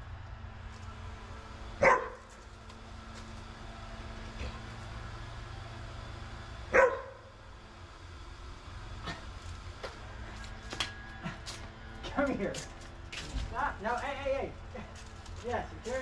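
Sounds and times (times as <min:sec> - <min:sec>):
steady low hum: 0:00.0 - 0:16.0
dog barking: 0:01.8 - 0:02.3, 0:06.7 - 0:07.2.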